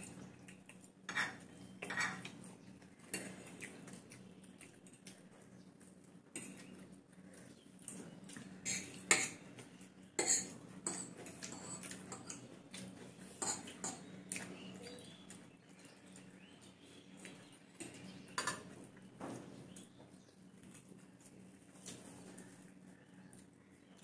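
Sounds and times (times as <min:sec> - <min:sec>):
forks clinking on plates: 0:10.2 - 0:12.4.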